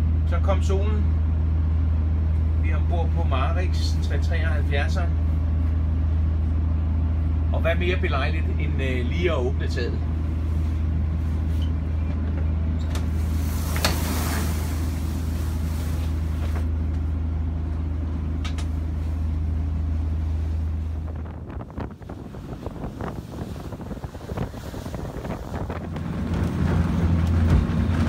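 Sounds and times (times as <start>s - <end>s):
low cabin drone: 0.0s - 28.0s
rush of air: 13.1s - 16.4s, 20.6s - 26.0s
gusty wind: 19.6s - 28.0s.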